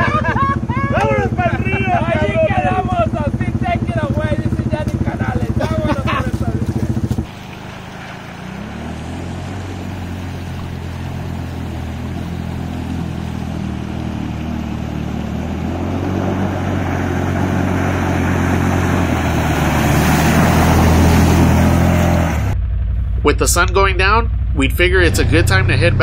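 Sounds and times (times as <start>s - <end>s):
atv engine running: 0.0s - 26.0s
water spray hissing: 6.2s - 22.0s.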